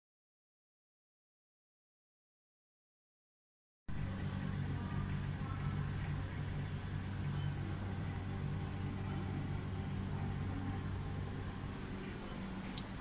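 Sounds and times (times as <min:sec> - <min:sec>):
machine drone: 0:03.9 - 0:13.0.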